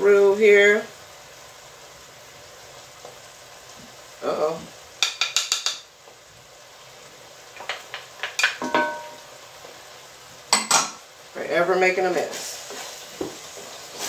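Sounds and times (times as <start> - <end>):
low sizzle from pot: 0.0 - 14.0
wooden spoon tapping glass bowl: 5.0 - 5.8, 8.6 - 9.2.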